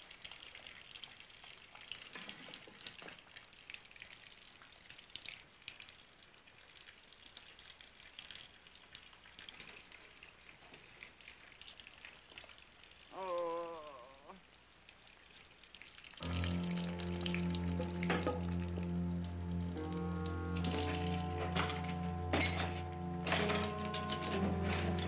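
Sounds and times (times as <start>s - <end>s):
crackle and hiss with ticks: 0.0s - 25.0s.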